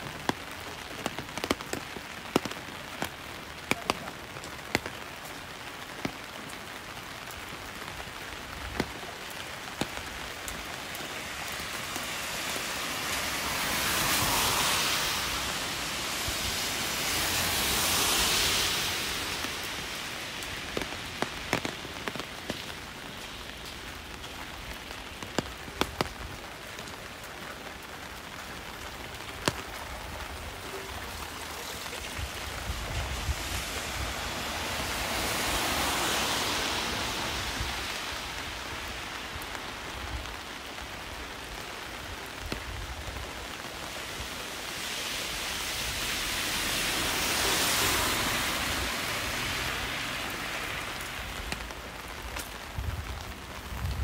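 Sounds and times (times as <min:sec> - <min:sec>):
rain hissing: 0:00.0 - 0:54.0
raindrops ticking nearby: 0:00.0 - 0:54.0.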